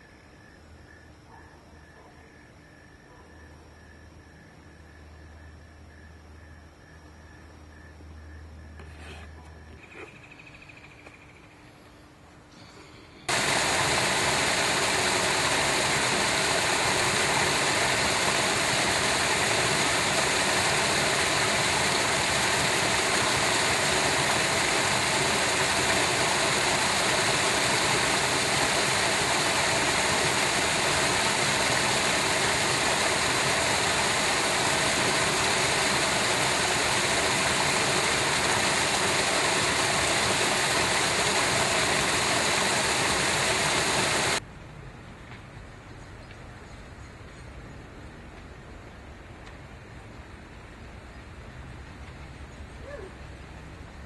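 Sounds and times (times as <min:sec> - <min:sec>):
water rushing over spillway: 0:13.3 - 0:44.4.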